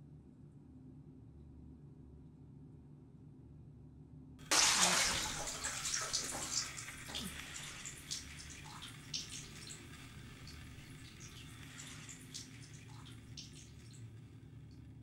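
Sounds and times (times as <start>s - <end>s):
bathwater splash: 4.5s - 14.1s
low hum: 4.5s - 15.0s
water trickling and dripping: 4.5s - 15.0s.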